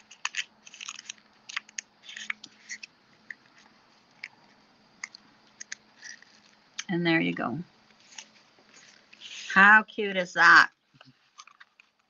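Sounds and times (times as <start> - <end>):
paper banknote crinkling: 0.0 - 4.5.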